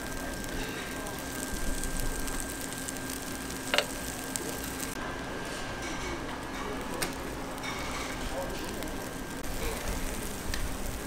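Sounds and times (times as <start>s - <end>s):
batter hissing in hot mold: 0.0s - 11.0s.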